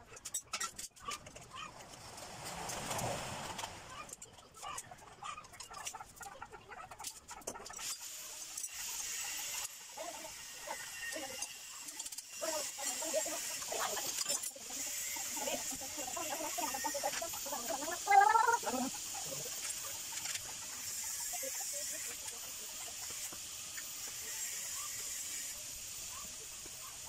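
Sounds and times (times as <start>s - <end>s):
sped-up squeaky voices: 8.9s - 25.2s.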